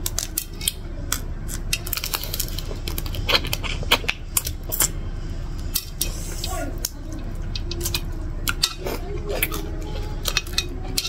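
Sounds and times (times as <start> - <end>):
crunchy chewing: 0.0 - 11.0
low steady hum: 0.0 - 11.0.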